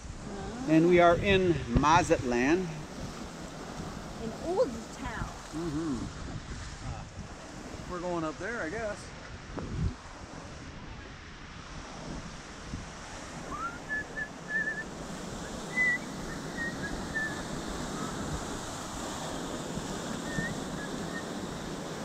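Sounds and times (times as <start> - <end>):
waves washing over rocks: 0.1 - 5.6, 12.0 - 22.0
high whistled chirps: 13.5 - 17.5, 20.1 - 21.4.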